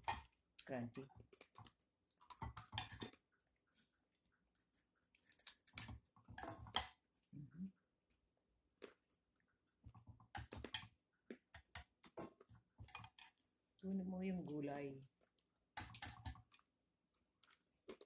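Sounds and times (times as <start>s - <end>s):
person chewing crispy food: 1.2s - 9.7s, 15.1s - 18.0s.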